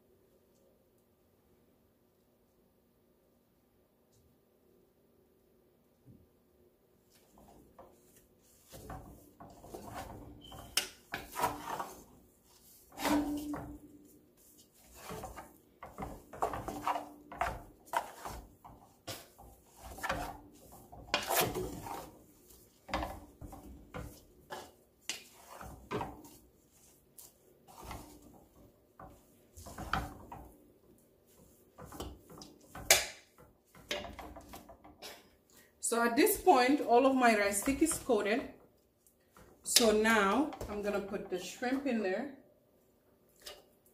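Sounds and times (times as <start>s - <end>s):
wooden spatula scraping metal pot: 7.1s - 42.2s.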